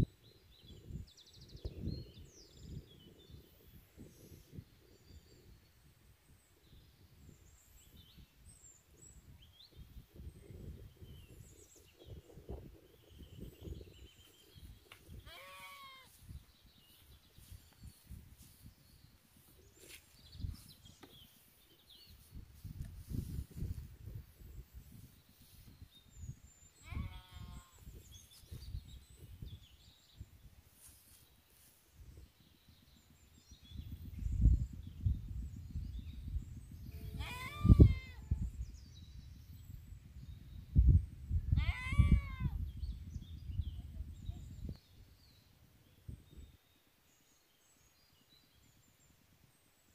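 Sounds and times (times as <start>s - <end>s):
wind rumble on microphone: 0.0s - 31.1s, 31.9s - 46.8s
goat bleating: 15.3s - 16.2s, 26.8s - 27.7s, 37.0s - 38.2s, 41.6s - 42.6s.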